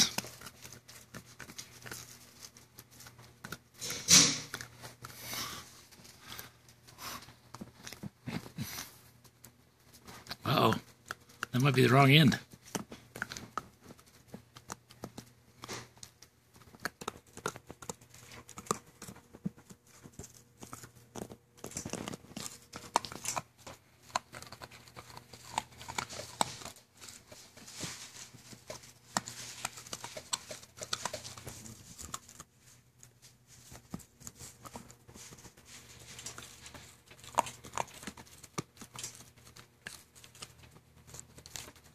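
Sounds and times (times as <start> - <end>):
teeth clicking on plastic: 0.0 - 5.2, 9.3 - 27.3, 28.6 - 32.5, 36.3 - 41.9
scratchy rustling: 0.0 - 41.9.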